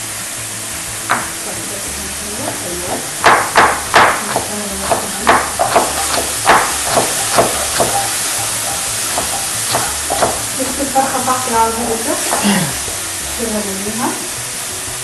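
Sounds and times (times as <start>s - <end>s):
chicken sizzling in a pan: 0.0s - 15.0s
knife chopping on wooden board: 1.1s - 1.4s, 2.5s - 10.6s, 11.8s - 13.0s
wooden spoon stirring: 1.1s - 13.8s.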